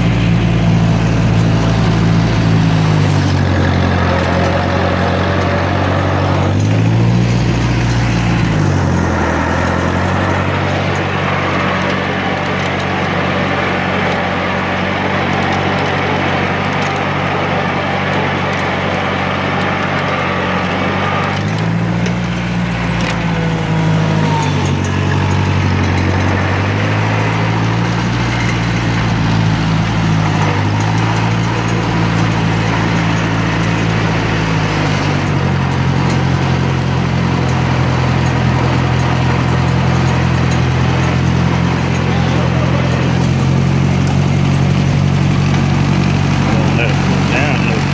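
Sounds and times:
tractor engine idling: 0:00.0 - 0:47.9.

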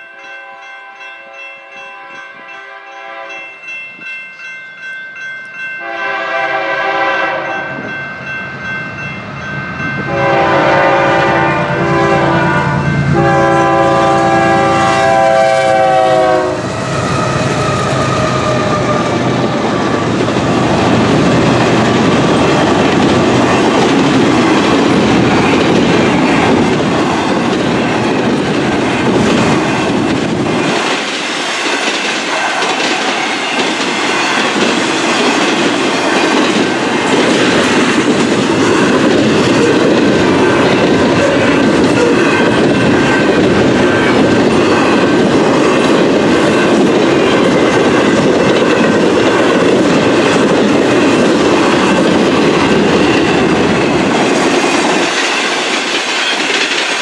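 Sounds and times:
freight train rolling past: 0:00.0 - 0:57.0
wheels clacking over rail joints: 0:16.8 - 0:57.0.

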